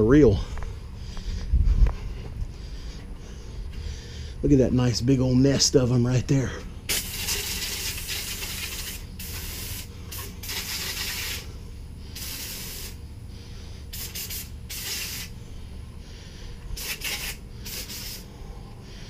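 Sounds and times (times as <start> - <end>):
aerosol spray hissing: 6.9 - 11.5, 12.1 - 13.0, 13.9 - 15.4, 16.8 - 18.3.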